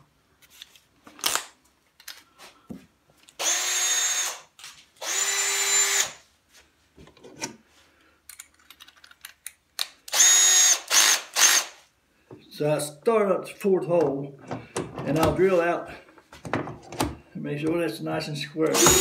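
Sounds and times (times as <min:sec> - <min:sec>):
cordless drill running: 0:03.4 - 0:06.2, 0:10.1 - 0:11.8, 0:18.7 - 0:19.0.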